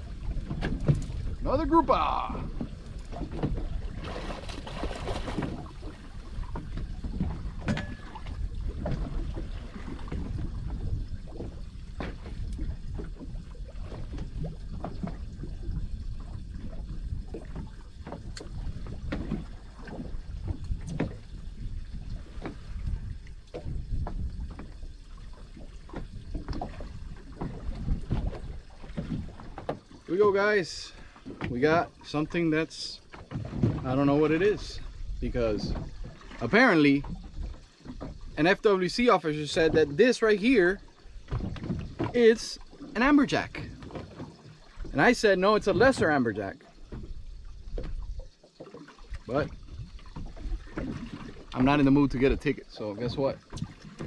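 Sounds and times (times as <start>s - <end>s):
wind on microphone: 0.0s - 29.4s
water slapping against boat hull: 0.0s - 54.0s.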